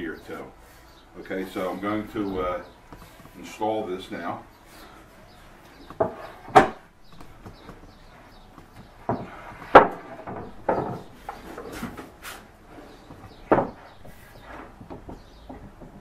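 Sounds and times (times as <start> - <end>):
wooden panels knocking: 5.9 - 8.0, 8.6 - 12.1, 13.0 - 16.0.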